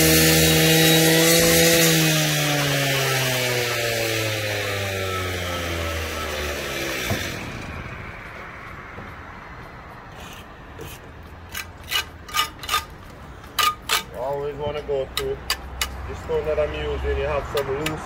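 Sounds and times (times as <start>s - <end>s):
power saw winding down: 0.0s - 7.9s
short scrapes and taps: 10.2s - 14.3s.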